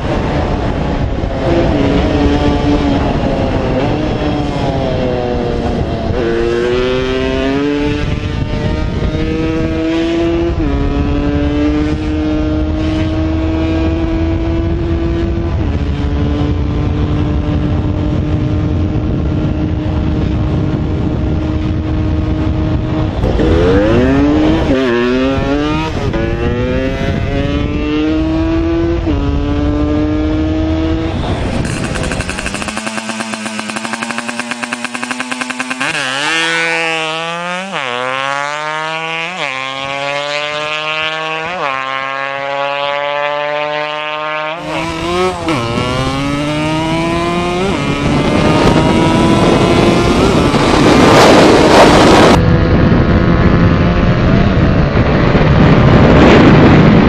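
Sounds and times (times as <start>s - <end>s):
rough engine: 17.8s - 57.0s
two-stroke engine shifting gears: 30.9s - 52.4s.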